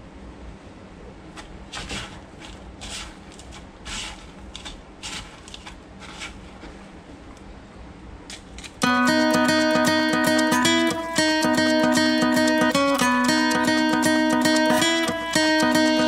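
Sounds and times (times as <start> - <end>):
low steady hum: 0.0 - 16.0
cracker crumbs rustling: 1.4 - 7.0.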